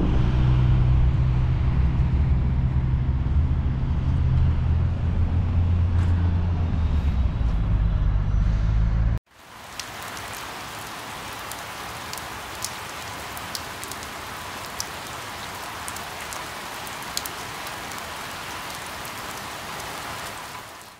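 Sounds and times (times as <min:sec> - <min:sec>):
steady rain hiss: 0:09.3 - 0:20.9.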